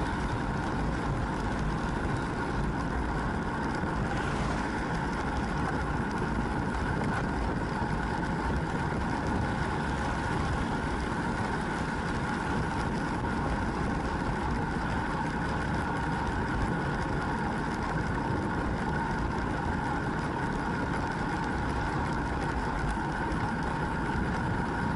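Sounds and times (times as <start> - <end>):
faint steady whine: 0.0 - 24.9
wind rush and road noise: 0.0 - 24.9.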